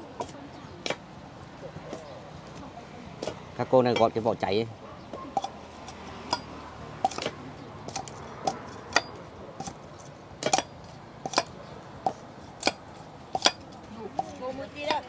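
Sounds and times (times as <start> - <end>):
cleavers knocking on bamboo: 10.4 - 15.0.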